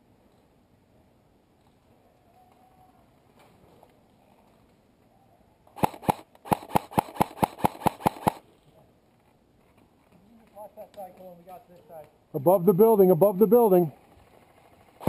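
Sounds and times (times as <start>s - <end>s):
airsoft rifle shots: 5.8s - 8.4s.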